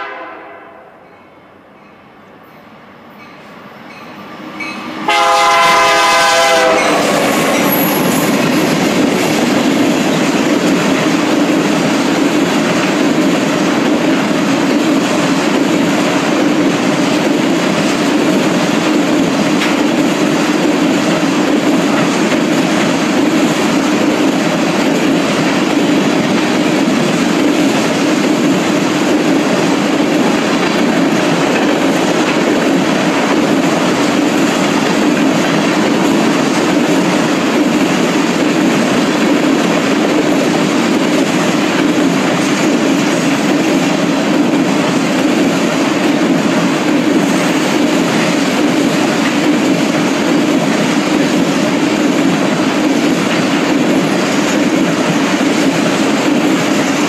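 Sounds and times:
locomotive horn blast: 0:00.0 - 0:01.0, 0:05.0 - 0:07.3
train cars rolling past: 0:00.0 - 0:57.0.

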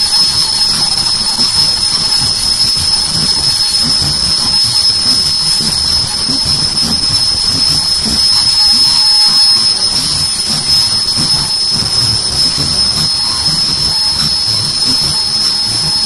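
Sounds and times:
machine whining and clattering: 0:00.0 - 0:16.0.

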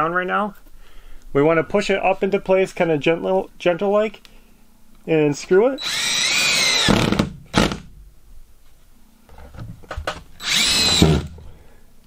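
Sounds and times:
cordless drill driving screws: 0:05.8 - 0:07.8, 0:10.4 - 0:11.4.

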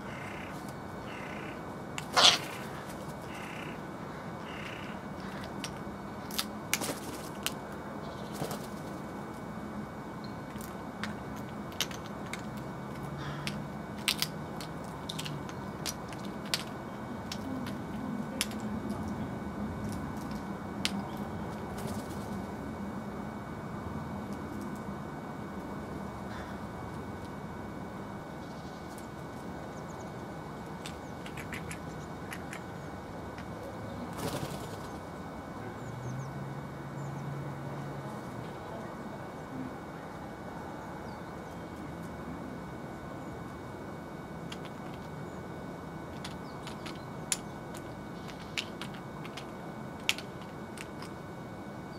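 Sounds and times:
outdoor background hiss: 0:00.0 - 0:51.9
steady background noise: 0:00.0 - 0:51.9
bird wings flapping: 0:06.8 - 0:07.4, 0:08.3 - 0:09.0, 0:34.1 - 0:35.0
bird beak tapping nuts: 0:30.8 - 0:32.6, 0:46.1 - 0:51.1.

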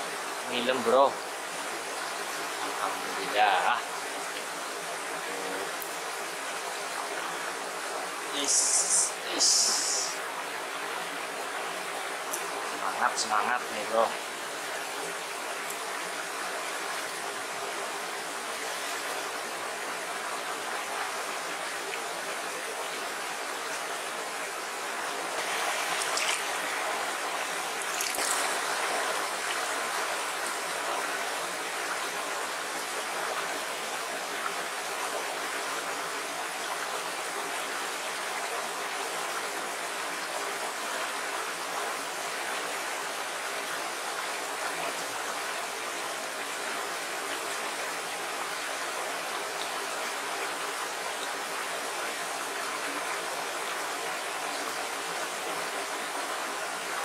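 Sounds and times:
stream flowing over stones: 0:00.0 - 0:57.0.

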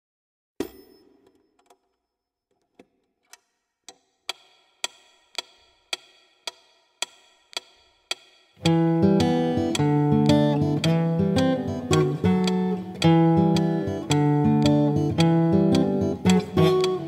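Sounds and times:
metronome ticking: 0:03.9 - 0:17.0
acoustic guitar: 0:08.6 - 0:17.0.

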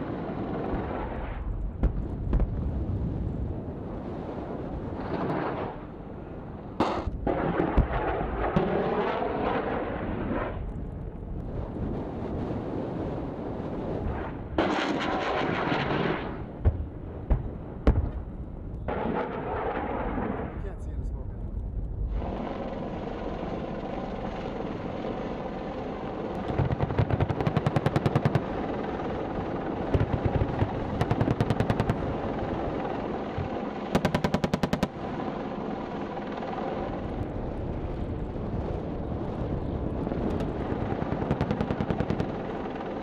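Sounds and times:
helicopter running: 0:22.1 - 0:43.0.

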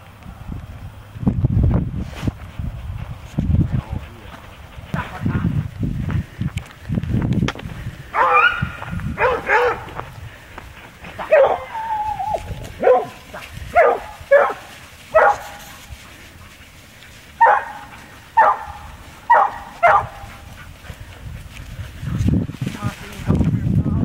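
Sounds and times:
hounds baying: 0:08.1 - 0:10.0, 0:10.7 - 0:22.3
hound howling: 0:11.2 - 0:13.2.

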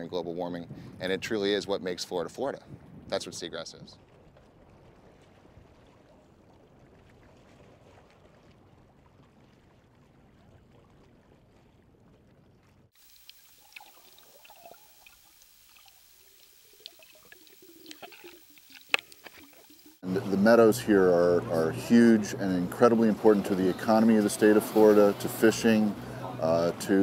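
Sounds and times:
underwater clicks and gurgles: 0:04.0 - 0:20.0
water sloshing and trickling: 0:04.0 - 0:20.5, 0:22.6 - 0:27.0
underwater hiss: 0:13.0 - 0:20.0.

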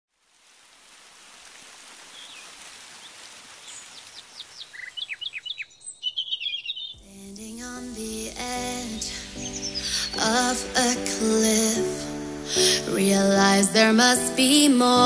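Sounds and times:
outdoor ambience hiss: 0:00.1 - 0:15.0
birds chirping: 0:02.1 - 0:12.4.

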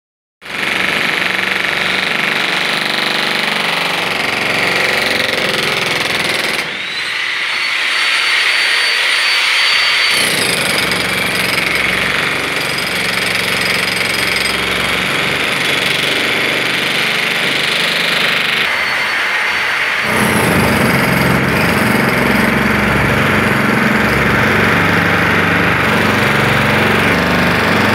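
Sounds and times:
demolition hammer on concrete: 0:00.4 - 0:18.9, 0:19.8 - 0:27.9
high whine: 0:06.8 - 0:10.5, 0:18.6 - 0:20.9.

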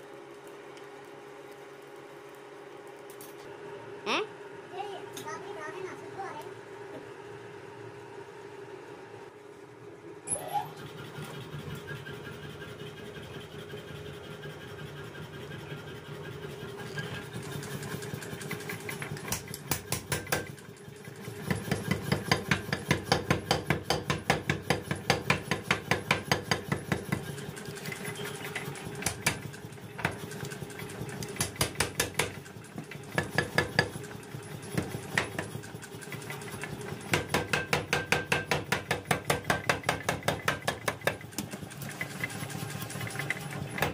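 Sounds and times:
power hammer pounding steel: 0:19.0 - 0:20.6, 0:21.3 - 0:27.3, 0:31.2 - 0:35.6, 0:37.0 - 0:41.4.

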